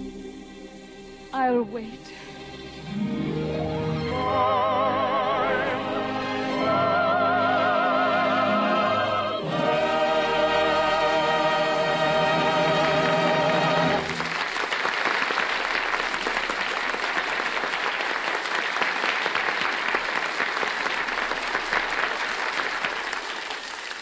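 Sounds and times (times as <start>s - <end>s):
audience applauding: 12.6s - 24.0s.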